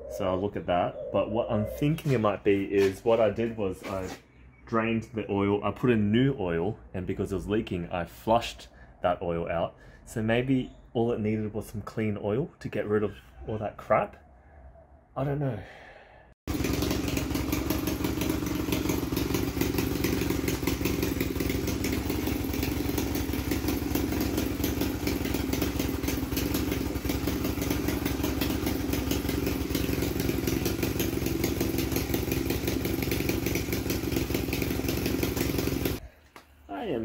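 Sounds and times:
motorcycle engine idling: 16.5s - 36.0s.

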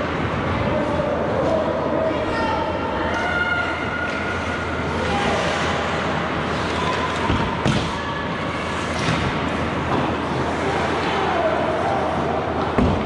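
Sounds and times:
steady rink hum: 0.0s - 13.0s
skates scraping ice: 4.1s - 13.0s.

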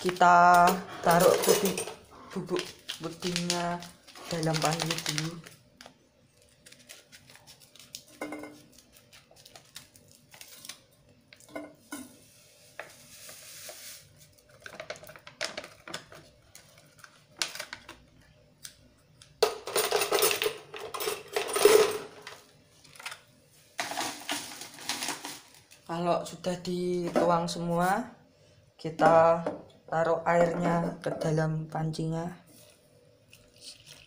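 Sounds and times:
packet rustling against a pot: 0.0s - 11.6s, 12.2s - 18.2s, 22.2s - 26.0s
scissors snipping plastic sachet: 2.5s - 5.5s.

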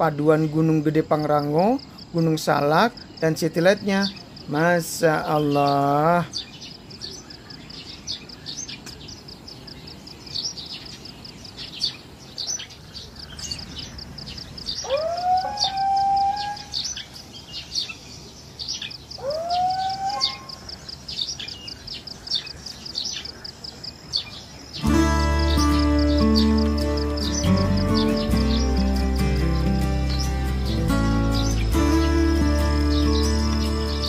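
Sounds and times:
small birds chirping: 0.0s - 34.0s
long rising bird call: 11.5s - 18.0s, 18.6s - 23.4s, 24.1s - 34.0s.

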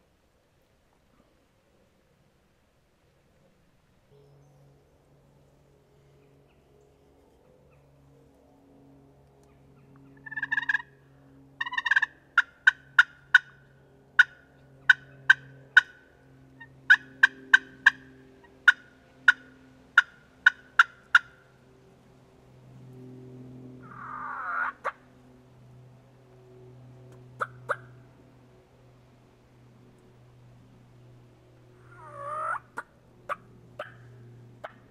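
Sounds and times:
turkey clucks: 10.2s - 10.9s, 11.6s - 13.6s, 14.2s - 16.0s, 16.6s - 21.4s, 23.8s - 25.0s, 27.3s - 27.9s, 31.8s - 34.9s
turkey rattling gobble: 10.2s - 10.9s, 11.6s - 13.6s, 14.2s - 16.0s, 16.9s - 21.4s, 23.8s - 25.0s, 27.4s - 27.9s, 31.8s - 34.9s
turkey yelping: 10.2s - 10.9s, 11.6s - 13.6s, 14.2s - 16.0s, 16.9s - 21.4s, 23.8s - 25.0s, 27.4s - 27.9s, 31.8s - 34.9s.

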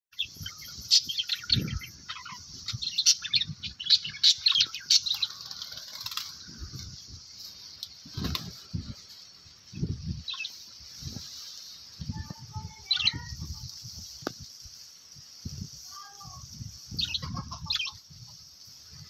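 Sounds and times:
budgerigars chirping: 0.2s - 6.2s, 16.9s - 18.0s.

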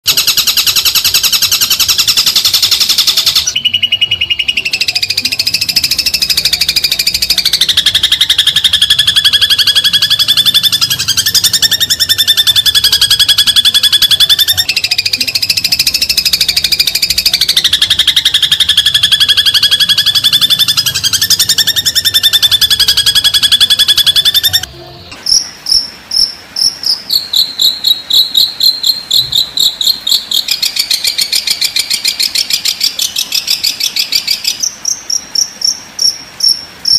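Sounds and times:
bird trilling: 0.1s - 24.7s, 25.3s - 35.0s
short trilled bird calls: 0.1s - 24.7s.

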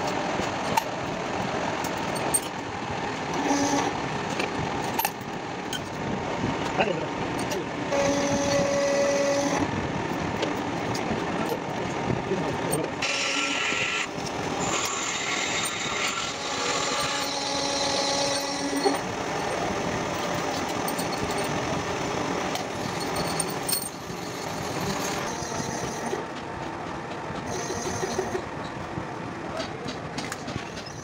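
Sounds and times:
valve seat cutter machining metal: 7.9s - 9.7s, 13.0s - 26.2s, 27.4s - 28.5s.

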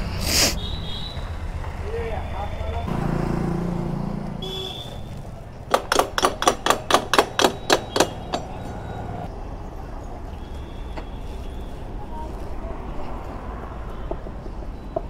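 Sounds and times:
hammer tapping on metal: 5.7s - 8.8s.

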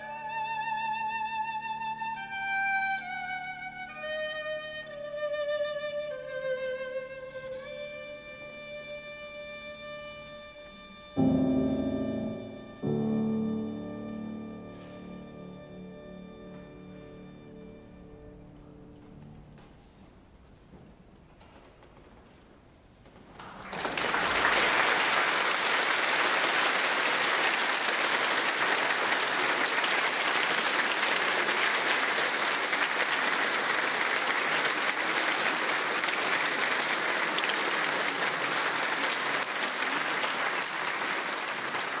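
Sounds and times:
large audience applauding: 23.4s - 42.0s.

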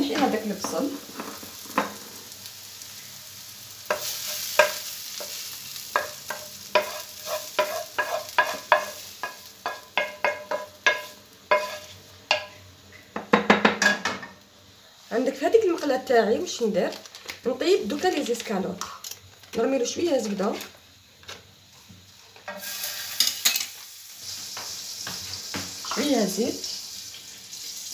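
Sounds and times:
hot oil sizzling: 0.0s - 27.9s
wooden spoon scraping a frying pan: 0.1s - 2.2s, 6.0s - 12.6s.

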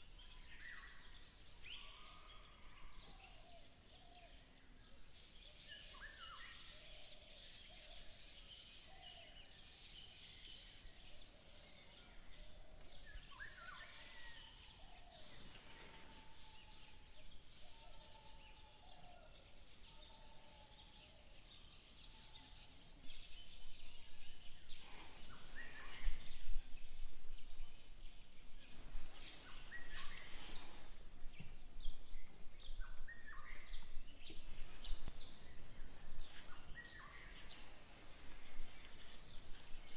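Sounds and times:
steady background hiss: 22.8s - 39.9s
birds chirping and whistling: 24.2s - 27.0s, 28.6s - 39.9s.

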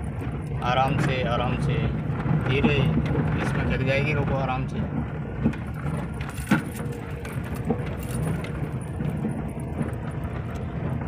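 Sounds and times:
engine and tyre rumble: 0.0s - 11.0s
light rattling: 5.3s - 11.0s.

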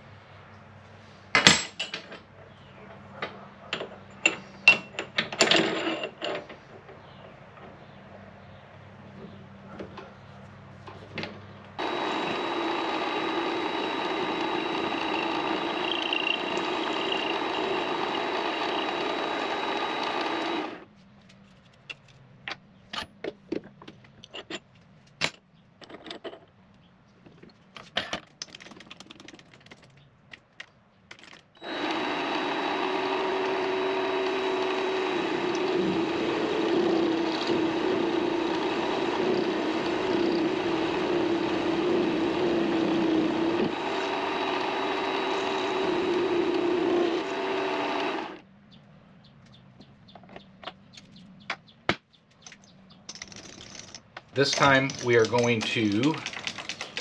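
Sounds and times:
lathe motor whine: 11.8s - 20.9s, 31.6s - 48.4s.

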